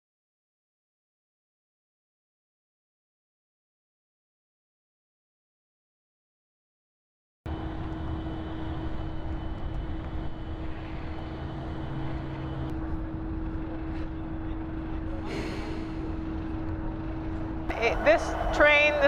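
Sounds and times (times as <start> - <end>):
diesel locomotive idling: 7.5 - 19.0.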